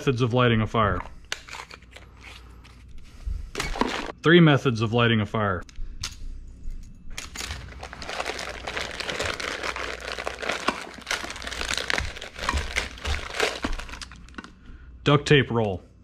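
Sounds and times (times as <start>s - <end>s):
plastic bag crinkling: 7.2s - 14.6s.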